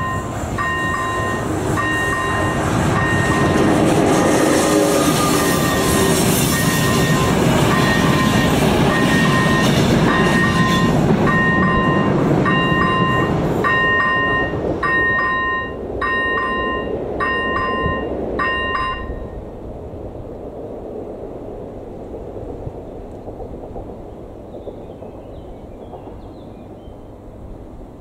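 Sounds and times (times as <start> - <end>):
level crossing bell ringing: 0.0 - 3.6, 6.6 - 19.3
train coaches rolling: 0.0 - 19.8.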